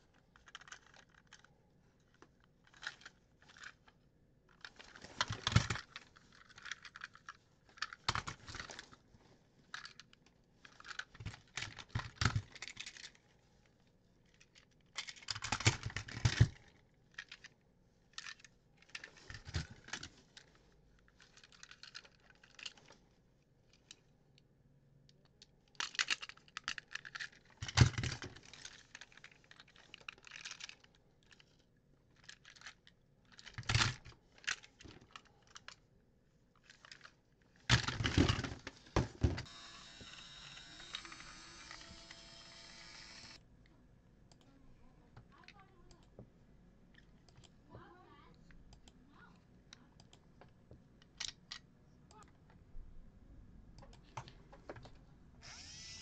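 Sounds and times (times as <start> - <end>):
plastic toy trains clattering: 0.3 - 1.5, 2.1 - 3.9, 4.5 - 9.0, 9.7 - 13.3, 14.3 - 17.6, 18.2 - 20.5, 21.1 - 23.0, 25.7 - 31.6, 32.2 - 35.8, 36.6 - 39.5.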